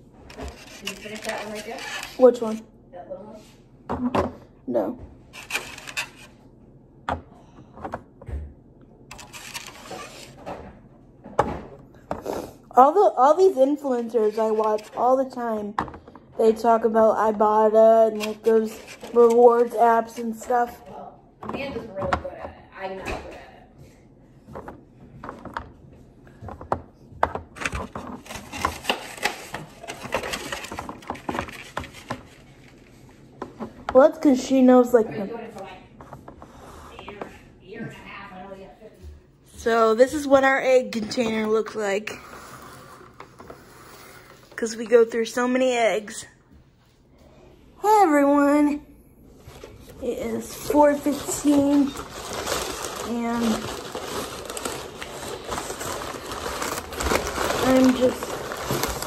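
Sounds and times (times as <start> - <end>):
packaging rustling: 0.3 - 2.5, 5.4 - 6.3, 9.1 - 10.4, 27.5 - 32.9, 49.5 - 59.0.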